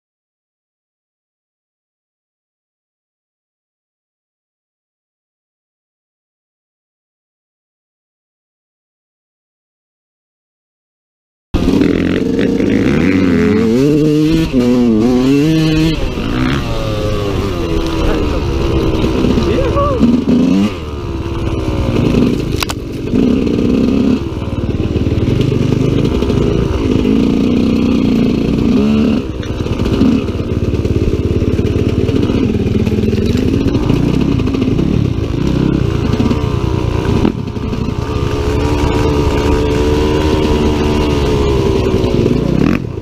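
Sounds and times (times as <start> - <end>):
dirt bike engine revving: 11.6 - 43.0.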